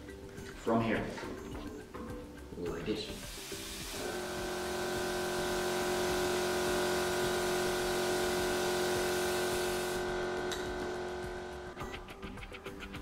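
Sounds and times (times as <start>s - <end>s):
compressed-air gun hissing: 3.1s - 10.2s
air compressor running: 3.2s - 12.1s.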